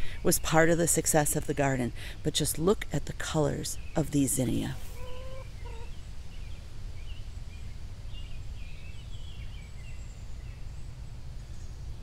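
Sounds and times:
small birds chirping: 0:03.5 - 0:11.8
hen clucking: 0:04.6 - 0:06.0.

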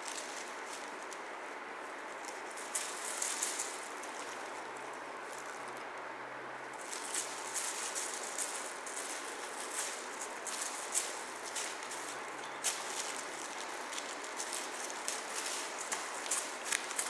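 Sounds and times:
foil toy crinkling: 0:00.0 - 0:01.3, 0:02.1 - 0:04.7, 0:06.8 - 0:17.0
steady hiss: 0:00.0 - 0:17.0.

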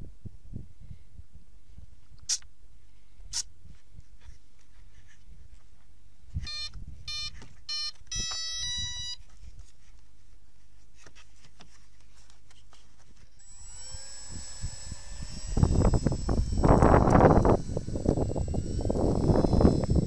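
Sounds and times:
speed controller start-up beeps: 0:06.5 - 0:09.2.

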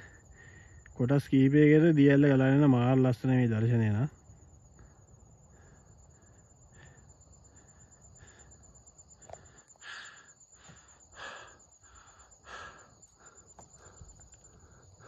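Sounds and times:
person breathing hard: 0:00.0 - 0:01.0, 0:04.7 - 0:15.0.

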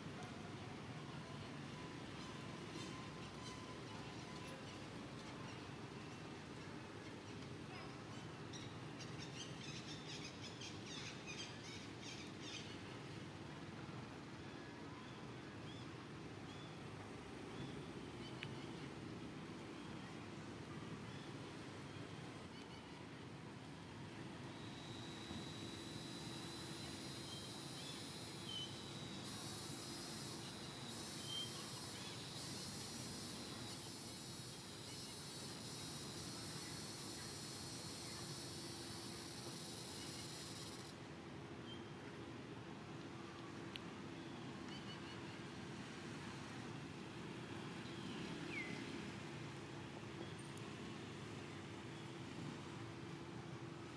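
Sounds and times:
continuous hiss: 0:00.0 - 0:53.9
insects buzzing: 0:24.5 - 0:40.9.

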